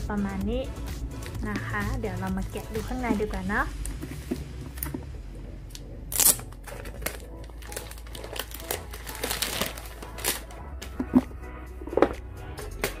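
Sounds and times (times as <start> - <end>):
plastic packaging crinkling: 6.1 - 10.6.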